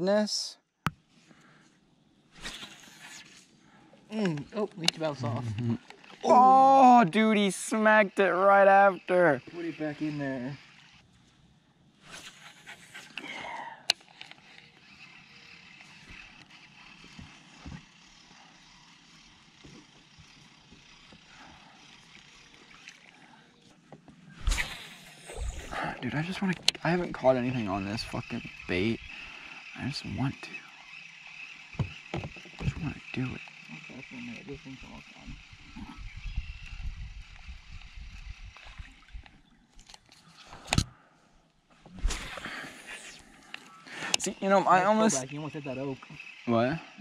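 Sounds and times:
fishing reel clicking: 4.2 - 11.1, 12.1 - 23.3, 24.4 - 40.8, 43.1 - 47.0.

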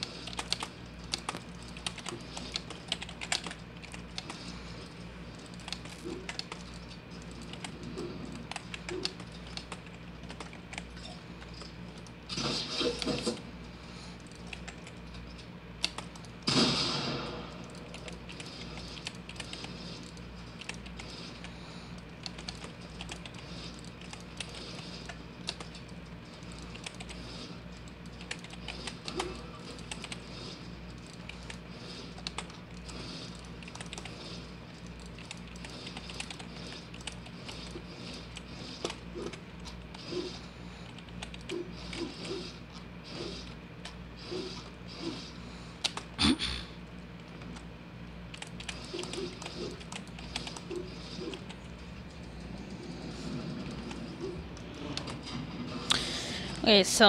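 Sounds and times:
typing on keyboard: 0.2 - 4.3, 26.7 - 27.2, 28.2 - 30.2, 33.6 - 34.2.

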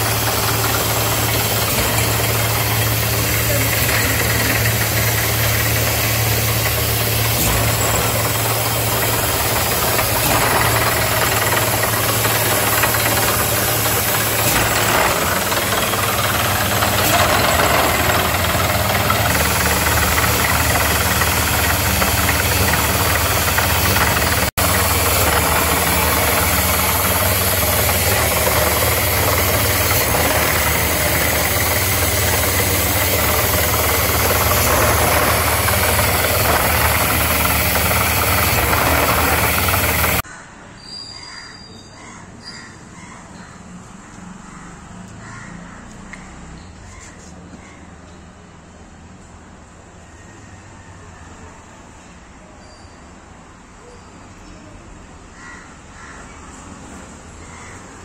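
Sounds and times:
drilling rig engine knocking: 0.0 - 40.2.

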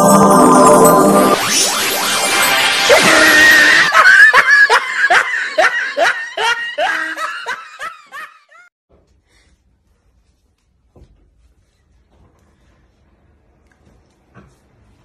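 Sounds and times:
man laughing hard: 2.9 - 8.7.

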